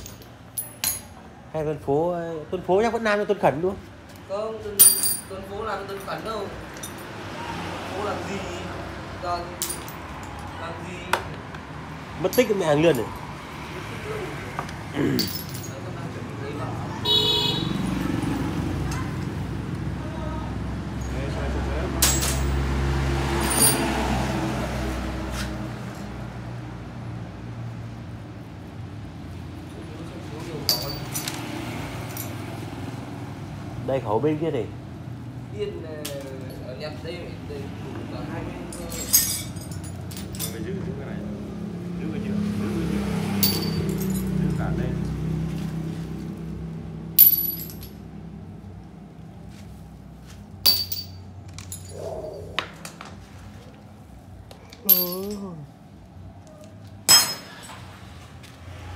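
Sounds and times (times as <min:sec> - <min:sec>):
metal tools clinking: 0:00.0 - 0:01.2, 0:04.8 - 0:07.2, 0:09.4 - 0:10.5, 0:12.3 - 0:13.1, 0:15.0 - 0:16.0, 0:22.0 - 0:22.6, 0:23.4 - 0:23.9, 0:30.6 - 0:31.4, 0:32.0 - 0:32.4, 0:38.7 - 0:40.7, 0:43.4 - 0:44.6, 0:47.2 - 0:48.0, 0:50.6 - 0:52.6, 0:54.7 - 0:55.6, 0:57.0 - 0:58.0.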